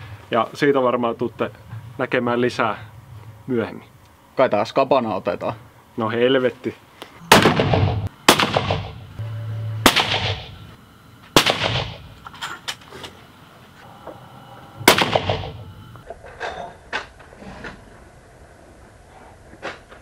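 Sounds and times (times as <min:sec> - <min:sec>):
rifle shots echoing indoors: 0:07.3 - 0:09.0, 0:09.9 - 0:10.6, 0:11.4 - 0:12.1, 0:14.8 - 0:15.6.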